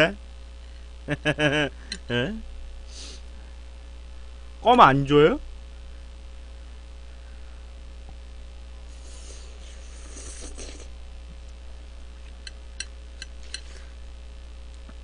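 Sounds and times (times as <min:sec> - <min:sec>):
steady electrical hum: 0:00.0 - 0:15.0
person slurping noodles: 0:08.9 - 0:11.0.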